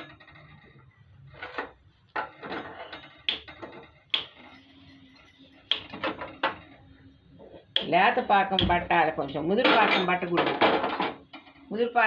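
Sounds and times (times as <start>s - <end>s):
metal pots and ladles clinking: 9.6s - 11.4s.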